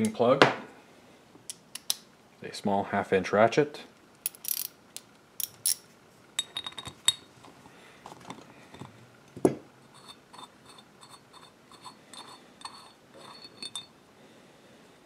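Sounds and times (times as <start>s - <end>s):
small metal parts clinking: 4.2s - 4.8s, 5.4s - 5.8s, 6.4s - 7.3s, 10.0s - 13.9s.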